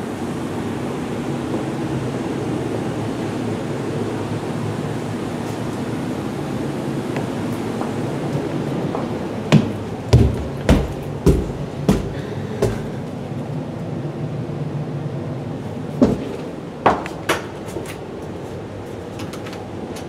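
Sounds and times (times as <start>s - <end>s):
steady low hum: 0.0s - 20.0s
footsteps on carpeted stairs: 8.9s - 13.2s, 16.0s - 20.0s.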